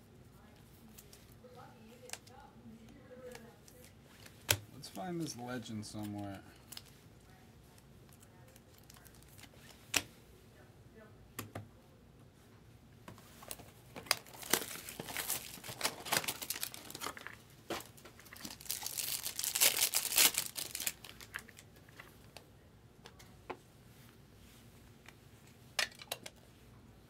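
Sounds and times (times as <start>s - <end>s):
wrapper crinkling and tearing: 8.3s - 9.8s, 13.4s - 21.7s.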